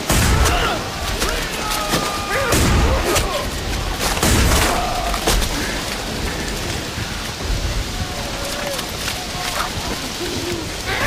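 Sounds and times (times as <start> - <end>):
gunshots: 0.0 - 5.8.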